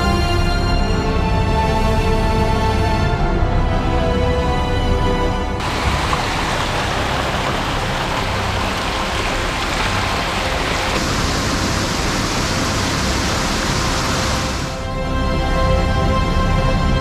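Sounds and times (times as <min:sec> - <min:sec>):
flowing water rushing: 0:05.6 - 0:15.0.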